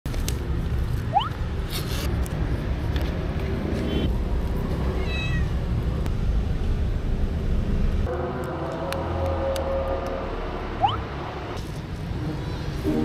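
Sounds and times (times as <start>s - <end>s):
cats meowing: 5.0s - 5.5s.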